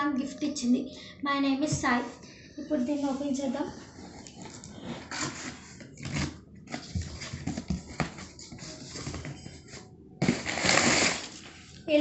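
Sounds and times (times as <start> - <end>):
packing tape ripping off cardboard: 10.2 - 11.5.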